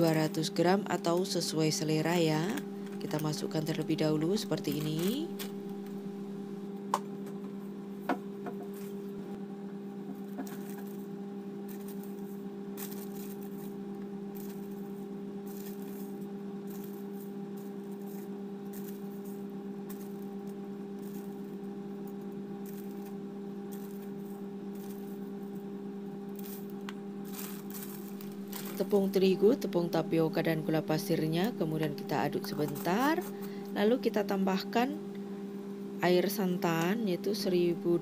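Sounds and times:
steady low hum: 0.0s - 38.0s
plastic bag rustling: 4.3s - 5.8s, 11.7s - 13.8s, 26.4s - 29.4s.

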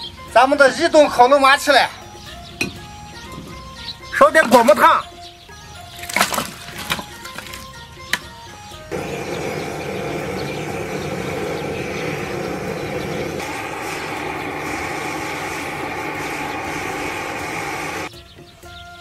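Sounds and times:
quiet music: 0.0s - 12.9s, 18.1s - 19.0s
gas blowtorch roaring: 8.9s - 18.1s.

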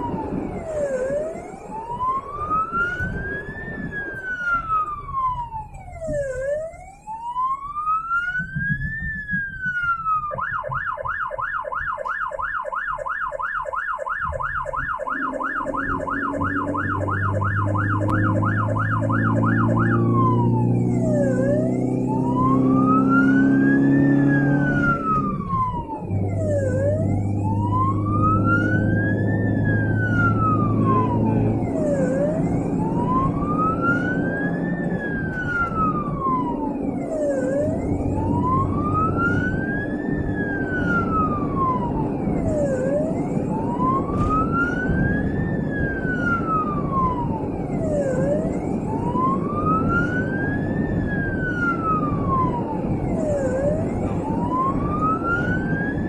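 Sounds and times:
ambulance siren wailing and yelping: 0.0s - 56.0s
vehicle engine hum: 14.1s - 56.0s.

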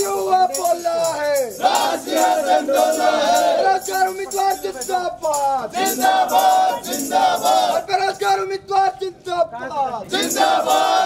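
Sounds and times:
crowd of men shouting slogans: 1.6s - 3.9s, 5.6s - 8.1s, 10.1s - 11.0s.

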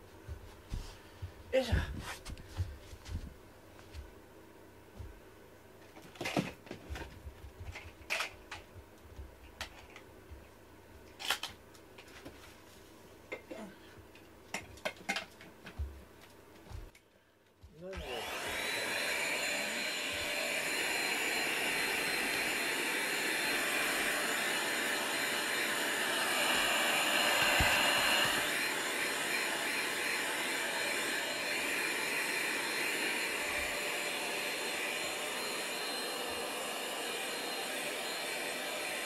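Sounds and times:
handheld vacuum cleaner running: 17.9s - 39.0s.

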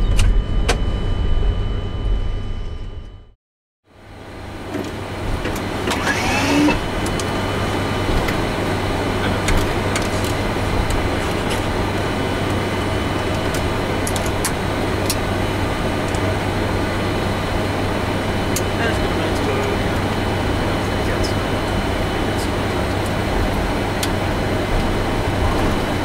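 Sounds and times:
aircraft engines humming: 3.9s - 26.0s.

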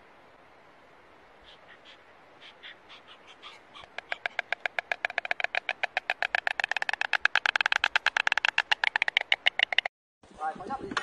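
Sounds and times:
storks clattering bills: 2.6s - 9.9s.

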